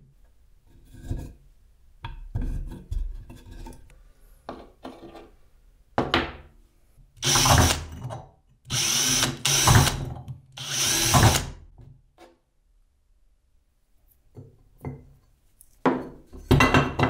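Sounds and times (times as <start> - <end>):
cordless drill boring into steel pipe: 7.2 - 7.9, 8.7 - 11.6.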